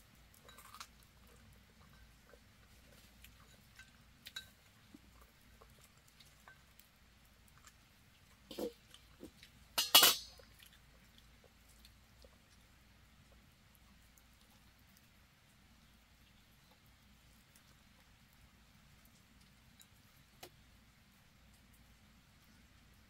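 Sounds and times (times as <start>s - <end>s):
kitchenware clattering: 9.8s - 10.4s.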